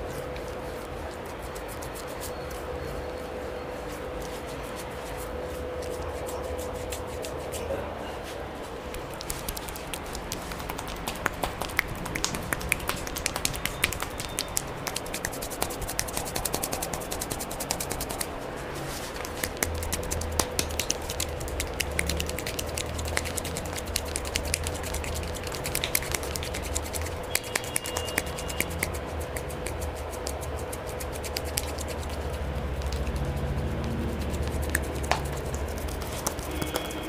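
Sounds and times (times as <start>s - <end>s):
hands slapping a face: 8.9s - 18.3s, 19.1s - 37.0s.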